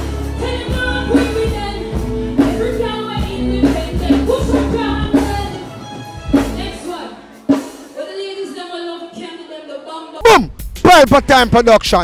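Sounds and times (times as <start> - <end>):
woman singing into a microphone: 0.0 - 7.4, 8.0 - 10.2.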